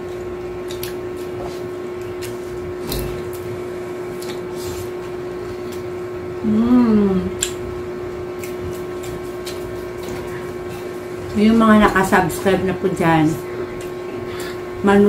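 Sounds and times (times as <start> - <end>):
steady background hum: 0.0 - 15.0
people chewing: 0.6 - 4.9, 8.4 - 12.4, 13.3 - 14.7.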